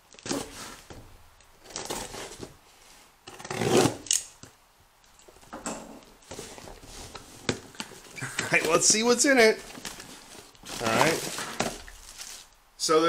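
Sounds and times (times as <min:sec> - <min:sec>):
cardboard rubbing and scraping: 0:00.2 - 0:00.9, 0:01.6 - 0:02.6, 0:06.2 - 0:12.4
blade slitting packing tape: 0:03.3 - 0:04.3.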